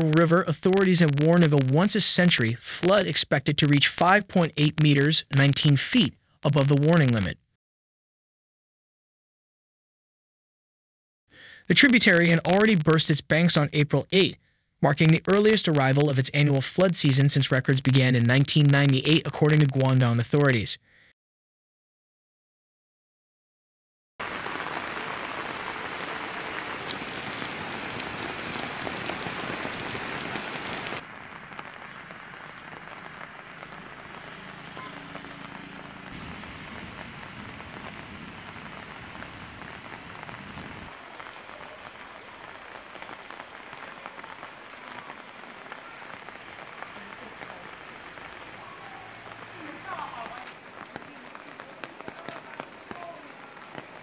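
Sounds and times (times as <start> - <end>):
heavy rain: 24.2 - 54.0
water wash: 24.2 - 54.0.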